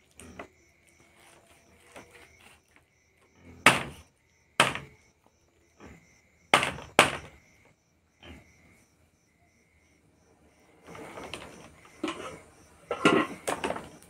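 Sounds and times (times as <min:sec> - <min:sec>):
knife chopping meat on wood: 0:03.7 - 0:04.0, 0:04.6 - 0:04.9, 0:06.6 - 0:07.3.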